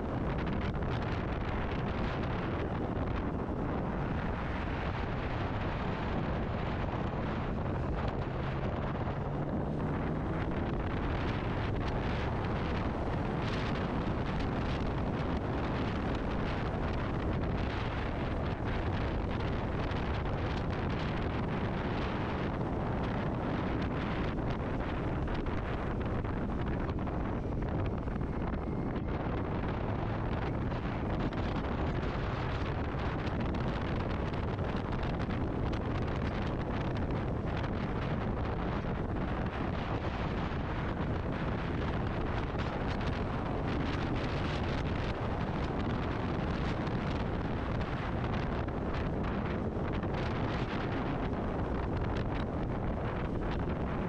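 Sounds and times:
wind rushing over microphone: 0:00.0 - 0:54.0.

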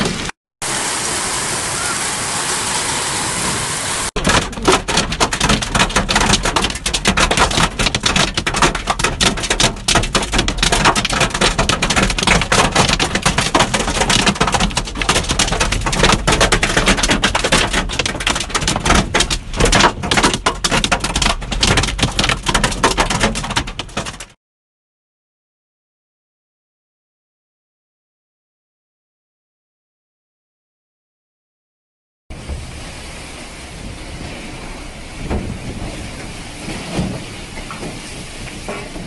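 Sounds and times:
hail and rain hissing on ground: 0:00.6 - 0:24.2
hail hitting a car roof: 0:04.1 - 0:24.4, 0:33.8 - 0:39.0.

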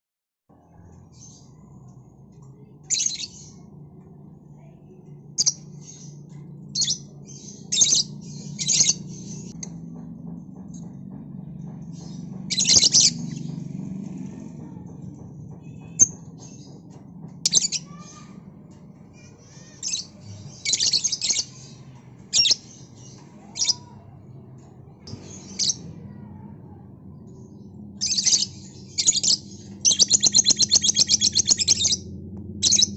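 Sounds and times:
lovebird chirping and squawking: 0:28.0 - 0:32.0.

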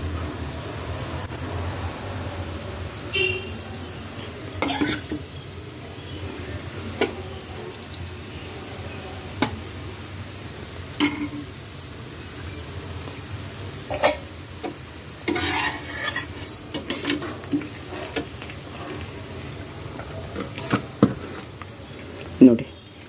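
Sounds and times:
faint sizzle: 0:00.0 - 0:23.0
metal spoon knocking on pans: 0:11.0 - 0:11.4.

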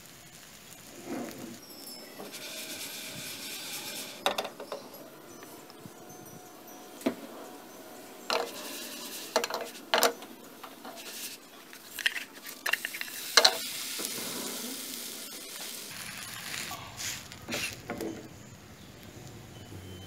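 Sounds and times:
pancake sizzling in oil: 0:00.0 - 0:20.0
wooden spatula scraping a pan: 0:00.8 - 0:05.0, 0:08.3 - 0:18.2.

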